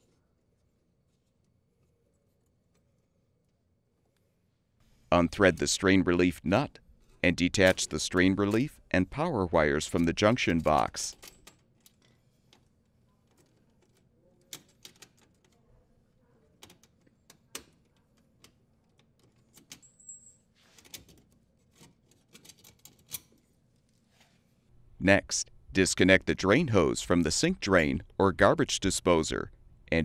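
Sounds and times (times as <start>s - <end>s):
small metallic clicks and rattles: 9.9s - 15.6s.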